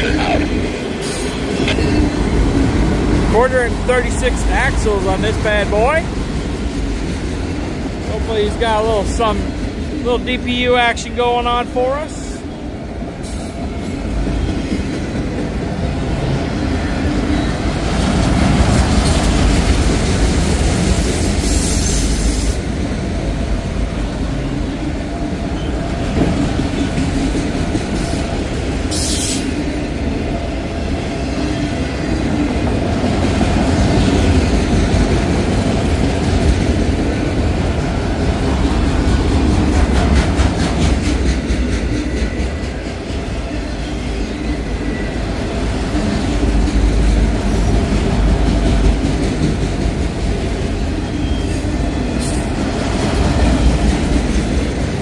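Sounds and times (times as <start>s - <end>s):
freight train wheels rumbling on rail: 0.0s - 55.0s
clickety-clack over rail joints: 13.2s - 24.3s, 25.1s - 29.4s, 32.2s - 43.9s, 45.5s - 55.0s.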